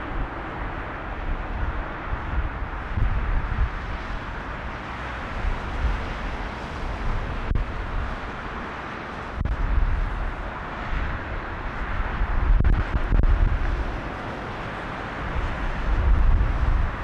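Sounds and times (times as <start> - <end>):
distant jet roar: 0.0 - 17.0
wind buffeting microphone: 0.0 - 17.0.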